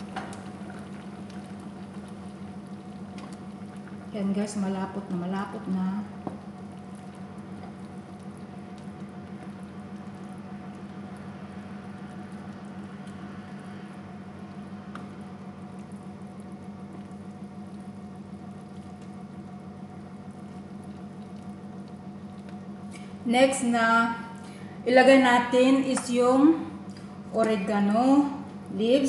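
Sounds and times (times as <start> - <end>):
sauce simmering and bubbling: 0.0 - 23.2.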